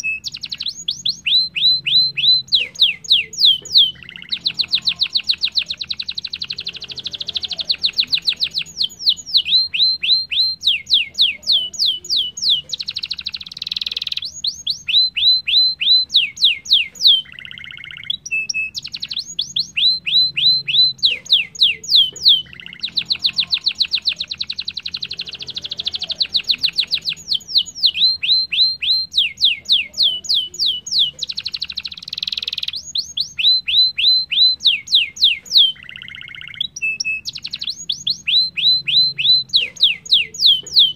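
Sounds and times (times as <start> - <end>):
canary singing: 0.0 - 40.9.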